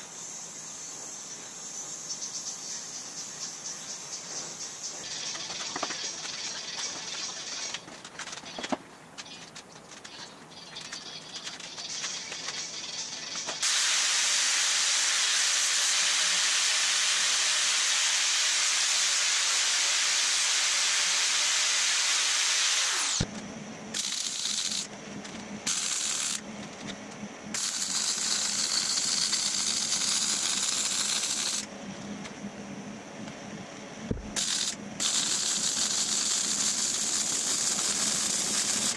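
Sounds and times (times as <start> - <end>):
short bursts of hissing: 13.6 - 23.2, 34.4 - 38.9
angle grinder grinding steel: 27.6 - 31.7.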